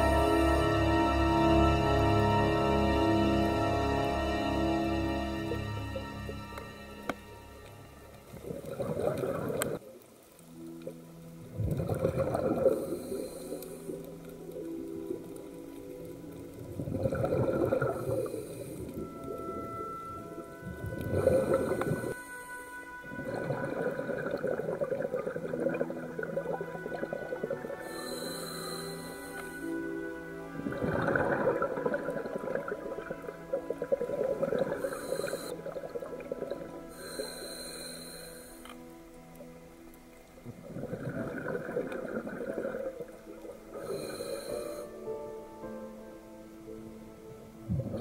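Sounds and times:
soft background music: 0.0 - 48.0
underwater exhaled bubbles: 8.3 - 10.2, 11.5 - 15.6, 16.2 - 29.8, 30.5 - 38.2, 40.4 - 44.8, 47.7 - 48.0.

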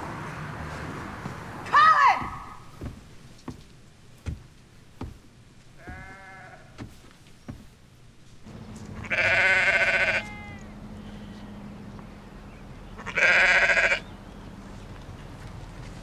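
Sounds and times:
sheep bleating loudly: 5.8 - 6.8, 9.0 - 10.8, 13.0 - 14.0.

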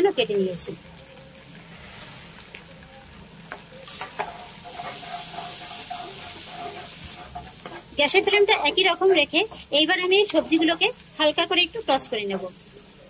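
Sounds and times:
vegetables sizzling in hot oil: 0.0 - 13.0
metal spoon stirring in wok: 3.5 - 8.9.

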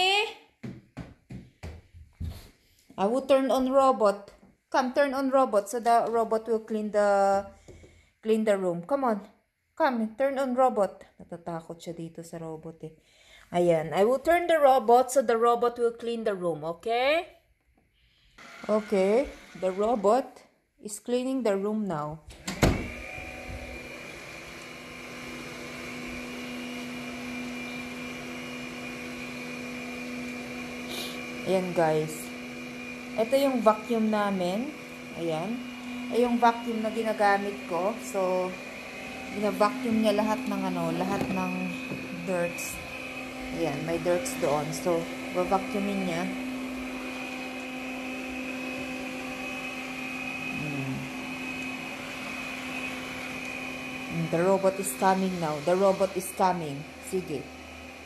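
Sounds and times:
robot vacuum cleaner running: 18.4 - 20.3, 22.6 - 58.0.

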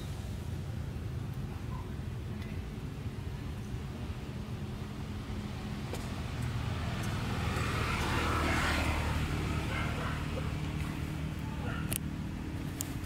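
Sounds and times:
motor vehicle passing by: 4.4 - 13.0.

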